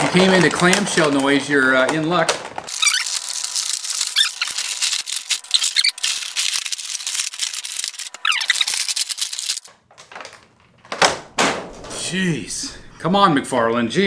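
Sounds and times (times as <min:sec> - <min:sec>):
plastic packaging crackling: 0:00.0 - 0:11.8
plastic squeaks: 0:01.9 - 0:11.0.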